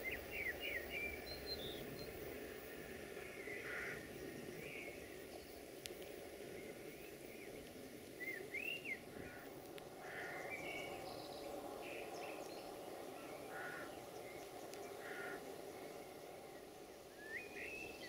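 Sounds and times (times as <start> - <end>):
birds chirping and whistling: 0.0 - 2.2, 8.2 - 9.1, 17.1 - 18.0.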